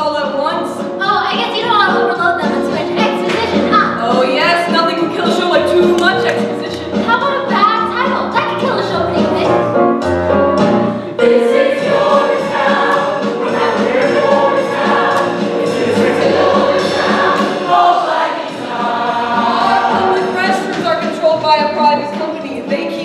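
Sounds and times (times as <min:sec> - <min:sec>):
instrumental accompaniment: 0:00.0 - 0:23.0
cast singing in chorus: 0:11.2 - 0:20.6.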